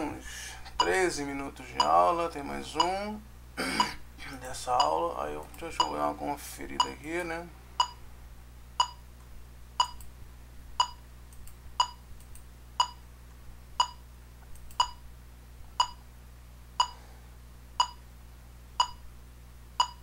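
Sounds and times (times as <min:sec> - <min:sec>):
electronic metronome beeping: 0:07.8 - 0:08.0, 0:08.8 - 0:09.0, 0:09.8 - 0:10.0, 0:10.8 - 0:11.0, 0:11.8 - 0:12.0, 0:12.8 - 0:13.0, 0:13.8 - 0:14.0, 0:14.8 - 0:15.0, 0:15.8 - 0:16.0, 0:16.8 - 0:17.0, 0:17.8 - 0:18.0, 0:18.8 - 0:19.1, 0:19.8 - 0:20.0.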